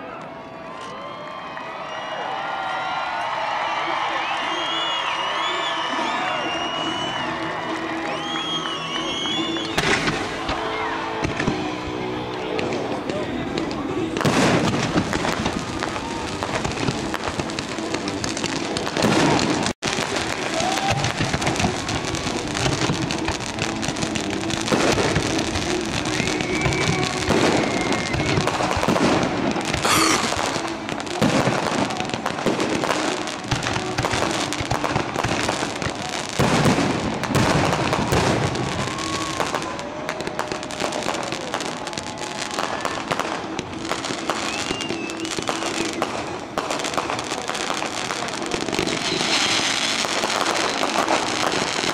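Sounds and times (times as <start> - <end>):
fireworks bursting and crackling: 2.9 - 51.9.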